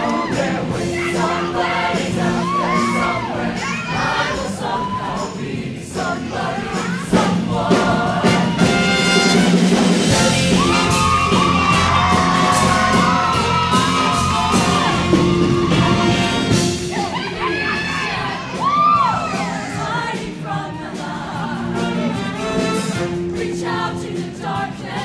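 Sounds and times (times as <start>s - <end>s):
singers shouting and whooping: 0.0s - 1.5s, 2.3s - 5.3s, 10.2s - 20.0s
choir and band playing: 0.0s - 25.0s
steady drum beat: 0.0s - 25.0s.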